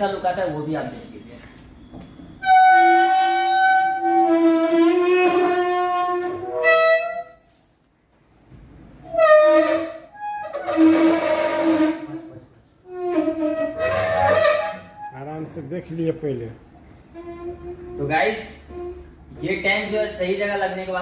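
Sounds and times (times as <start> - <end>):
flute-like wind instrument music: 2.4 - 7.5, 9.0 - 15.2, 17.1 - 19.4.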